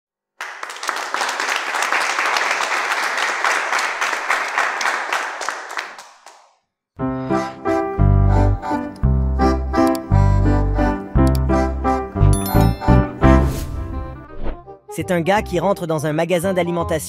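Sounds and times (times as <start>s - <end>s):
crowd applauding: 0.4s - 6.6s.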